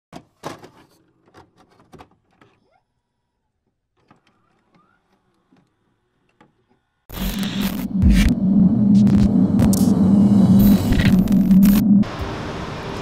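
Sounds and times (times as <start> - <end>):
electronic glitch clicks and crackles: 7.1 - 12.1
rising electronic blips: 7.1 - 12.1.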